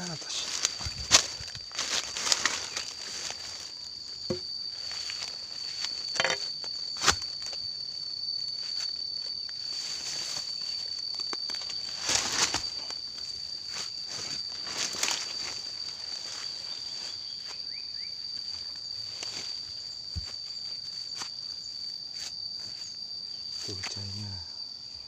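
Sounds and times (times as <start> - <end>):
insects droning: 0.0 - 25.0
footsteps through undergrowth: 0.2 - 7.4, 9.6 - 23.9
sharp knocks: 4.3 - 4.5.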